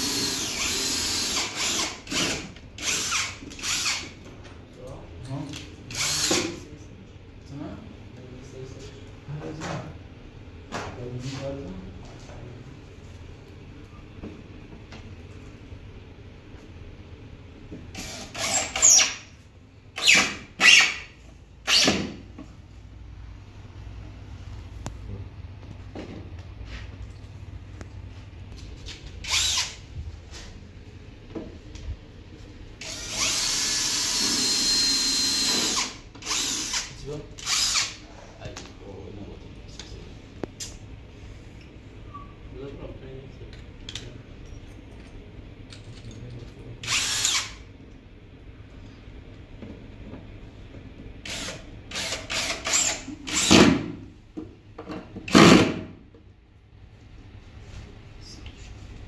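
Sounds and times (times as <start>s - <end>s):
cordless drill running: 0.0s - 4.1s, 5.9s - 6.3s, 29.2s - 29.8s, 32.8s - 38.0s, 46.8s - 47.6s, 51.2s - 53.7s.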